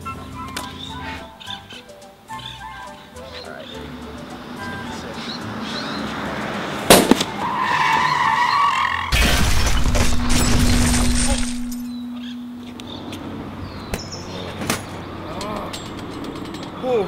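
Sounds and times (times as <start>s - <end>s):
sharp bang: 6.9s - 7.3s
rushing crash with deep rumble: 9.1s - 11.9s
steady low hum: 9.2s - 16.7s.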